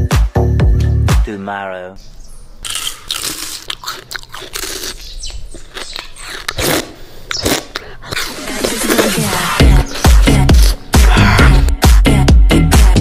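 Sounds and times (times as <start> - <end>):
teeth crunching ice pop: 2.6 - 9.2.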